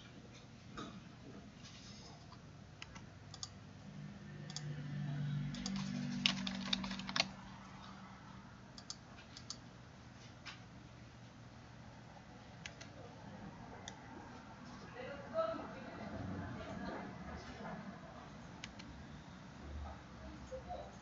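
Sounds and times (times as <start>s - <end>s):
computer keyboard clicks: 2.8s - 3.6s, 4.5s - 4.7s, 5.5s - 7.4s, 8.8s - 9.6s, 18.6s - 18.9s.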